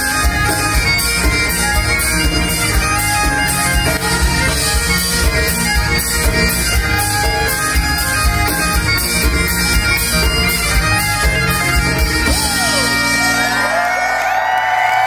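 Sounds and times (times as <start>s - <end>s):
accordion: 0.0s - 13.7s
bagpipes playing a tune: 0.0s - 14.1s
drums: 0.0s - 14.2s
crowd whooping and cheering: 12.2s - 15.0s.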